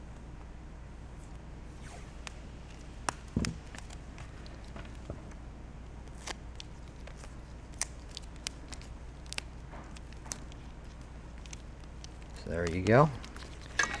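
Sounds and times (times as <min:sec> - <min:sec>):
low steady hum: 0:00.0 - 0:14.0
wires and connectors clicking: 0:06.0 - 0:14.0.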